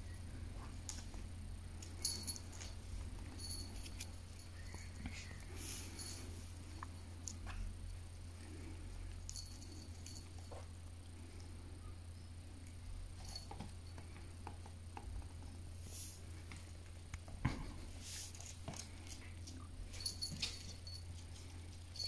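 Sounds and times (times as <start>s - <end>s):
steady low hum: 0.0s - 22.0s
animals scuffling and pawing: 14.9s - 22.0s.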